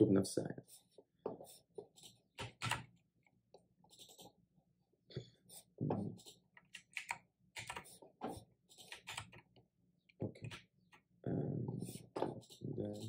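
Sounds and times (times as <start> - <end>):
typing on computer keyboard: 2.4 - 2.9, 6.6 - 7.9, 8.9 - 9.4.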